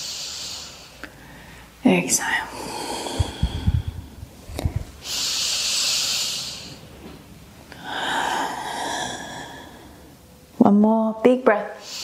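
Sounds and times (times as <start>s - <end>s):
woman breathing deeply: 0.0s - 6.9s, 7.7s - 10.2s, 11.8s - 12.0s
soft low thumps: 3.0s - 5.0s.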